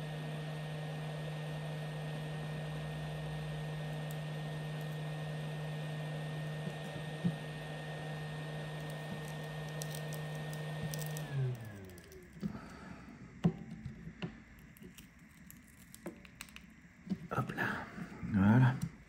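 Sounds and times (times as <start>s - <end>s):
heat gun fan blowing: 0.0s - 14.7s.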